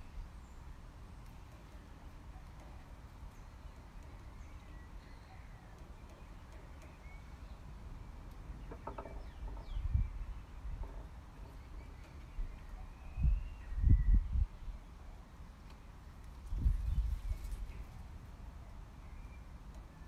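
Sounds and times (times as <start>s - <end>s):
faint bird chirps: 1.3s - 15.1s.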